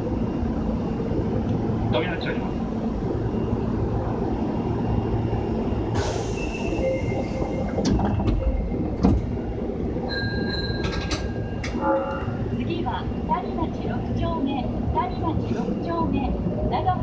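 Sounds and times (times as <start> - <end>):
train wheels rumbling on rail: 0.0 - 17.0
high wheel squeal: 10.1 - 12.5.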